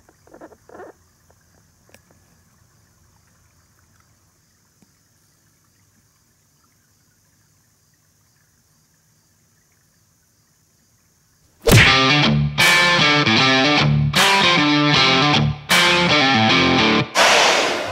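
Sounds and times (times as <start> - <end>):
faint steady hiss: 0.0 - 11.9
faint soft ticks: 1.2 - 2.3, 3.2 - 5.0.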